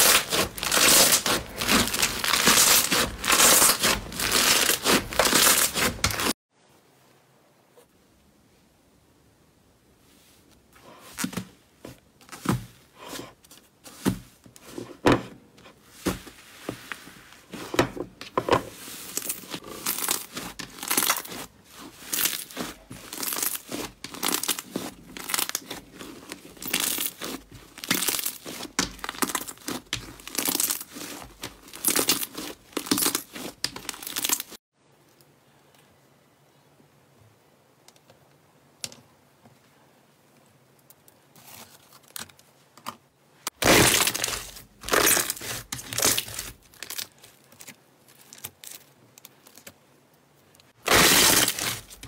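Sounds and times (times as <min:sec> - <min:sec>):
slime crackling and tearing: 0:00.0 - 0:06.4, 0:19.1 - 0:34.6, 0:43.5 - 0:49.7, 0:50.8 - 0:52.0.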